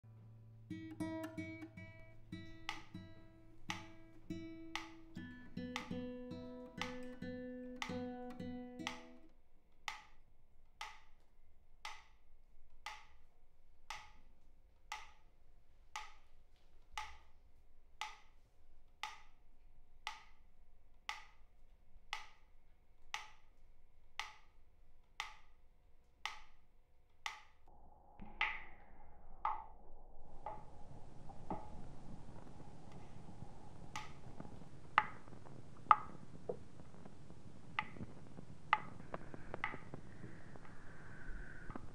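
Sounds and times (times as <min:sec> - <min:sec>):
classical guitar plucked: 0:00.2 - 0:09.3
metronome ticking: 0:00.7 - 0:09.3
steady hiss: 0:27.7 - 0:41.9.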